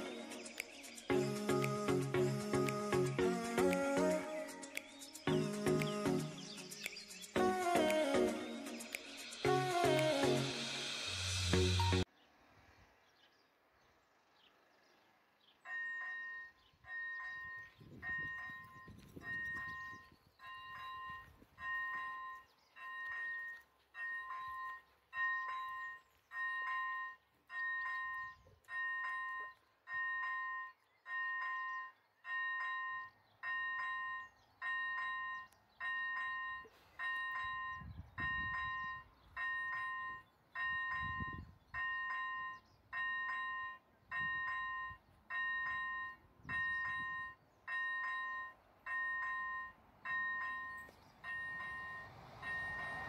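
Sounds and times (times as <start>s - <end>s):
level crossing warning bells: 15.6s - 53.0s
wind gusts on microphone: 17.8s - 20.2s, 37.7s - 39.0s, 40.9s - 41.8s.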